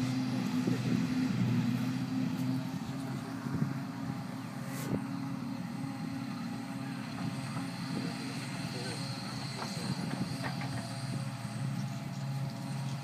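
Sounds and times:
distant low engine drone: 0.0s - 13.0s.

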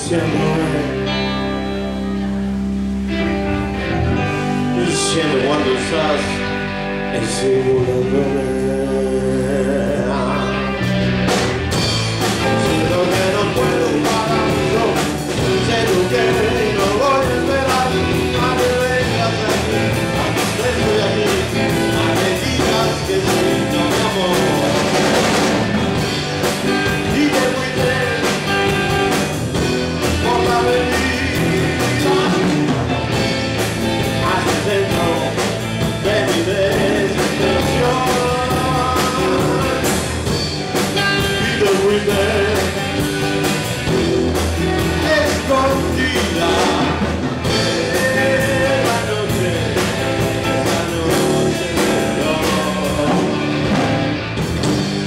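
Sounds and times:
man singing into a microphone: 0.0s - 1.4s, 4.7s - 10.8s, 12.4s - 25.2s, 26.8s - 29.3s, 30.0s - 32.9s, 34.0s - 40.2s, 41.0s - 43.4s, 44.8s - 53.6s
drums: 0.0s - 55.0s
electric guitar: 0.0s - 55.0s.

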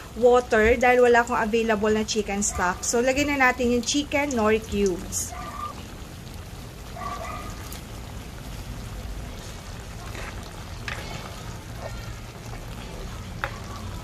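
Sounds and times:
stew bubbling in a pan: 0.0s - 14.0s.

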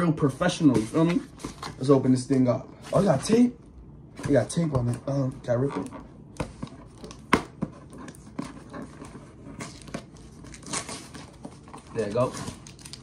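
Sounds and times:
cardboard scratching and rustling: 4.3s - 13.0s
packing tape tearing off cardboard: 5.2s - 13.0s.

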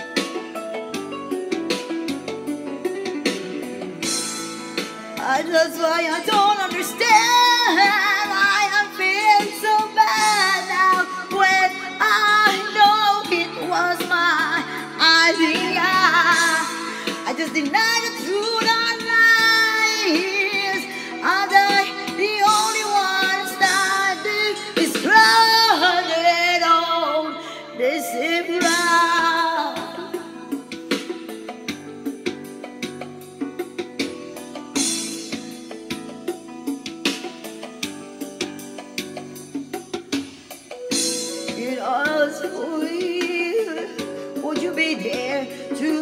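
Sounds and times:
music backing track: 0.0s - 46.0s
woman singing with vibrato: 5.2s - 30.5s, 41.4s - 46.0s.

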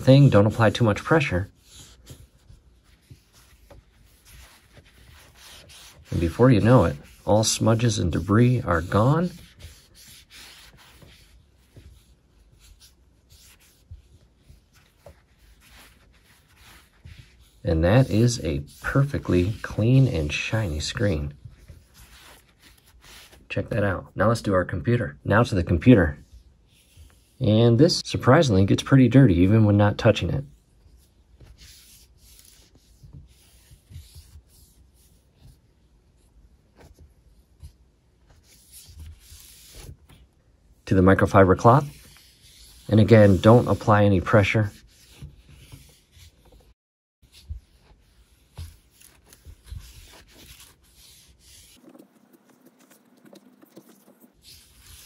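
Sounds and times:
wet wipe swishing on screen: 0.0s - 23.5s, 41.5s - 55.0s.

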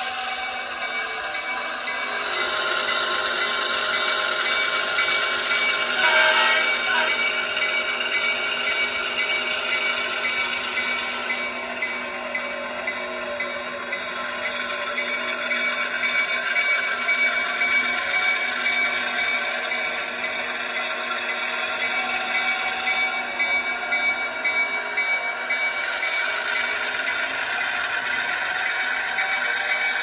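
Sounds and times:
model diesel engine sound from speaker: 0.0s - 30.0s.

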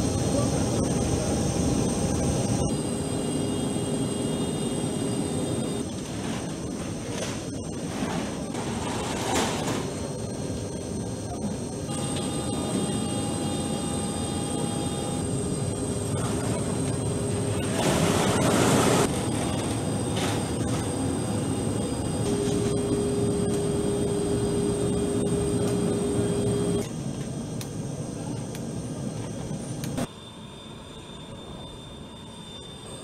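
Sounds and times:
high whining tones: 0.0s - 27.0s
aircraft machinery drone: 0.0s - 33.0s
steady hum tone: 0.0s - 33.0s.

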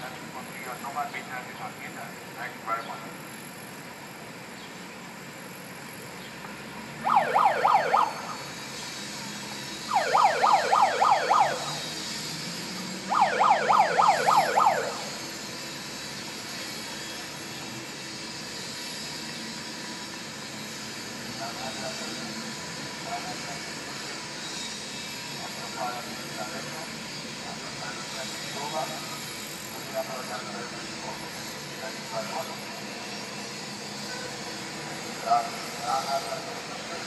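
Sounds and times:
city background hum: 0.0s - 37.0s
electronic alarm chirps: 9.9s - 11.8s.

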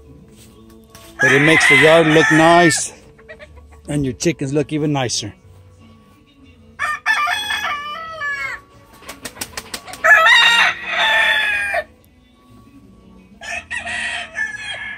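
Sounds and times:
roosters crowing: 1.0s - 3.9s, 6.7s - 8.9s, 9.7s - 12.0s, 13.4s - 14.9s.

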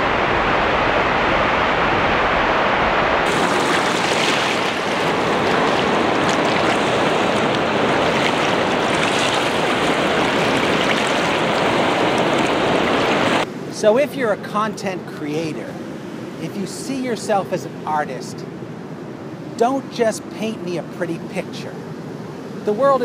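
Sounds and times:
waterfall rushing water: 0.0s - 13.4s.

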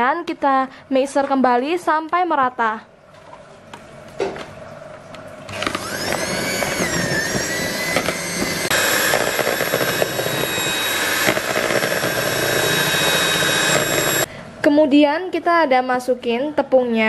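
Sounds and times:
electric hand mixer whine: 5.5s - 14.3s.

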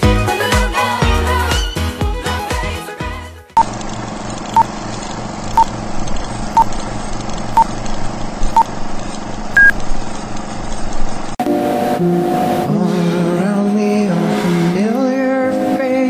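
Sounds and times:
countdown beeps: 9.6s - 9.8s.

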